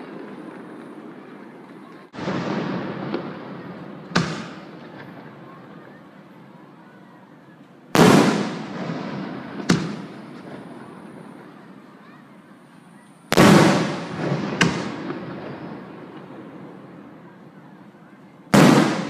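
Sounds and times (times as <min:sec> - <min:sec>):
sharp firework crack: 0:02.2 - 0:05.2, 0:08.0 - 0:11.3, 0:13.3 - 0:16.4, 0:18.5 - 0:19.0
firework shells booming: 0:02.2 - 0:05.4, 0:08.0 - 0:11.4, 0:13.3 - 0:17.1, 0:18.5 - 0:19.0.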